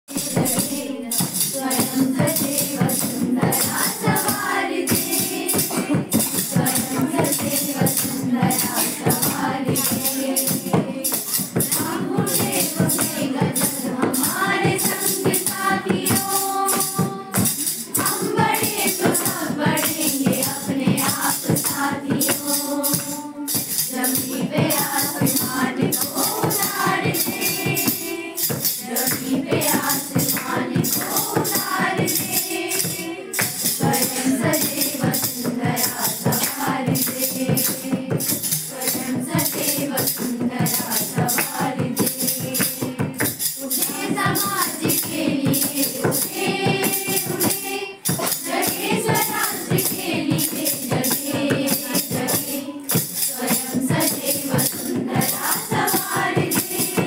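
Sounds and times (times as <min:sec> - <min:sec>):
group singing: 0:00.1 - 0:57.0
hand clapping: 0:00.2 - 0:57.0.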